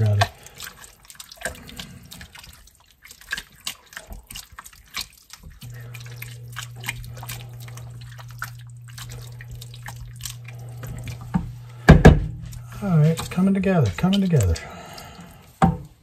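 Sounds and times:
spatula stirring wet chili: 0:00.0 - 0:16.0
steady low hum: 0:05.6 - 0:15.6.

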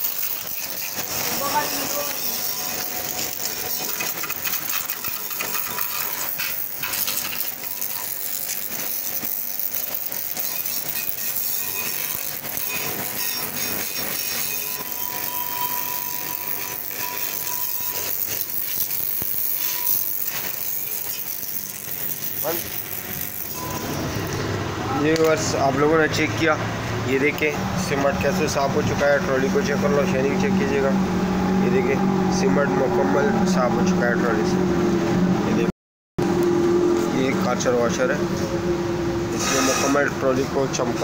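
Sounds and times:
pressure washer spraying metal: 0:00.0 - 0:24.2.

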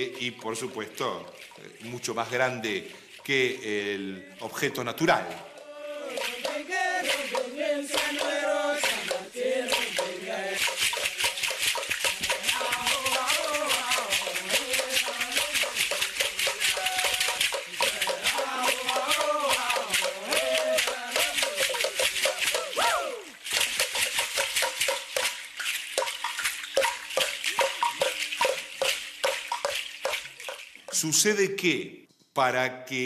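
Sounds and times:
men chanting together: 0:05.5 - 0:10.6, 0:12.4 - 0:15.2, 0:16.8 - 0:21.8
shell ankle rattles clattering: 0:23.4 - 0:31.1.

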